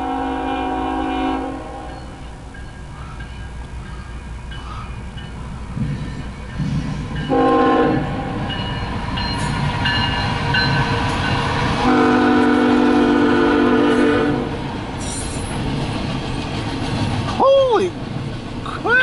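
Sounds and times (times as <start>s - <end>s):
locomotive air horn blasts: 0.0s - 2.2s, 7.3s - 8.5s, 11.8s - 14.6s
train rumbling past: 0.0s - 19.0s.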